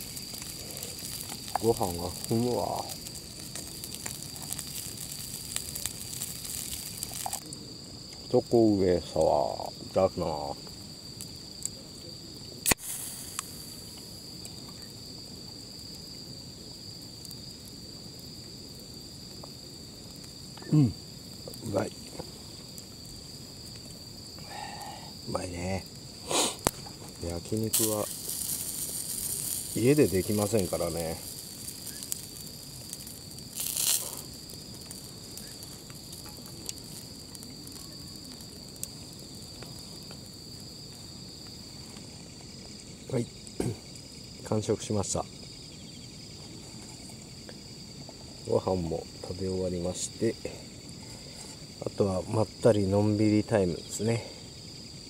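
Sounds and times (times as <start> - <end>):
loud hiss: 0.0 - 10.6, 12.5 - 18.9, 20.4 - 40.8
crickets trilling: 0.0 - 55.0
can cracked open: 12.6 - 13.5.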